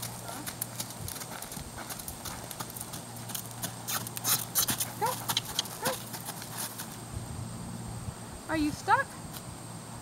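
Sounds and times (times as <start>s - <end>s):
horse hooves walking on sand: 0.0s - 7.1s.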